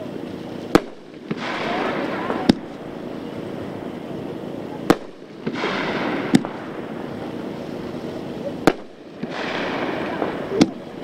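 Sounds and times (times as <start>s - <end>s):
continuous rushing noise: 0.0s - 11.0s
firework bangs: 0.0s - 11.0s.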